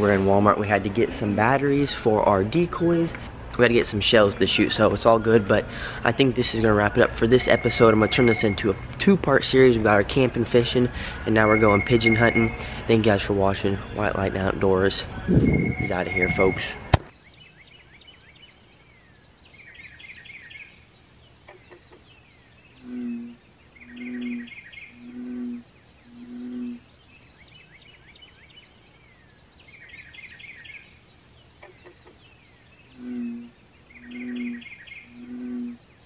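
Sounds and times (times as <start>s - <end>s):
birds chirping: 0.0s - 36.0s
bullfrog calling: 22.8s - 26.9s, 32.9s - 35.9s.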